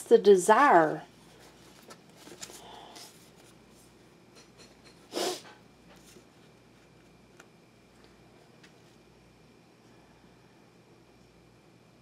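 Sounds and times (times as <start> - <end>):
cards rustling: 1.3 - 3.8.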